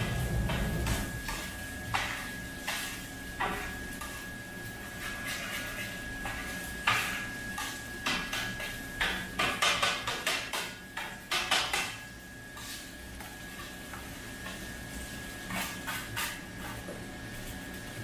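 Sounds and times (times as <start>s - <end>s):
metal spatula striking griddle: 0.0s - 4.2s, 5.0s - 14.6s.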